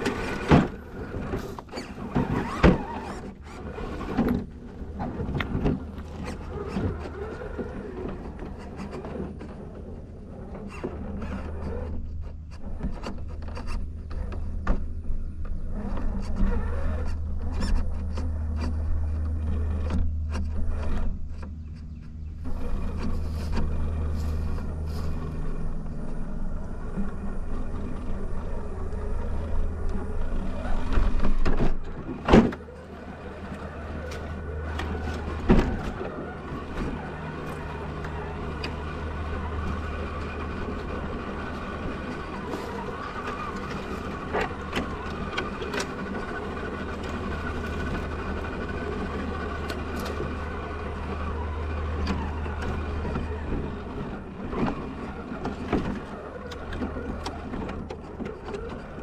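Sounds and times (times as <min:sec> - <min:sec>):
rc truck electric motor drone: 0:00.0 - 0:59.0
chassis clicks and knocks: 0:10.8 - 0:59.0.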